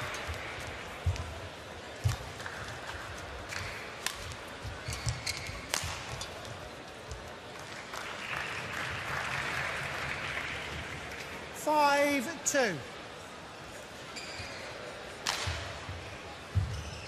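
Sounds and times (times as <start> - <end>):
racket hitting shuttlecock: 5.0 - 6.3, 15.2 - 15.7
crowd applauding: 7.6 - 11.8.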